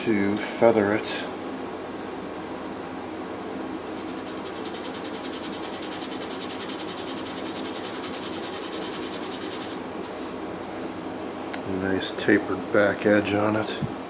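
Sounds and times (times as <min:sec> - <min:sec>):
wood rubbed on sandpaper: 0:03.8 - 0:10.3.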